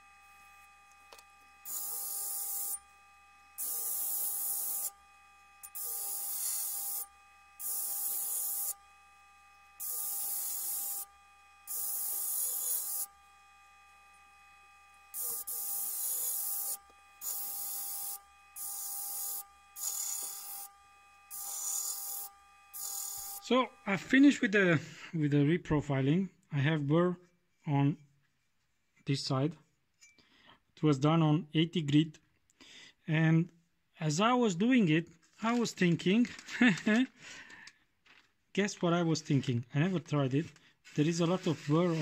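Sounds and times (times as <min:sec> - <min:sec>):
blade grinding on sanding disc: 0:00.0 - 0:24.4, 0:40.8 - 0:42.0
sander motor whine: 0:00.0 - 0:24.5.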